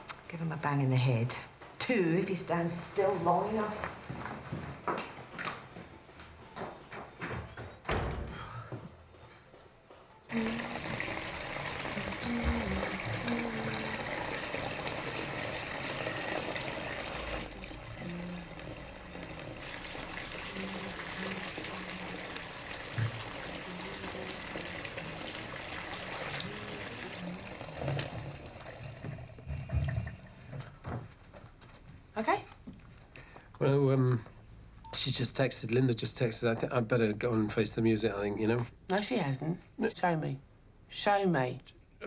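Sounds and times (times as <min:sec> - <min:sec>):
tap running into bathtub: 0:10.3 - 0:17.8, 0:18.5 - 0:31.0.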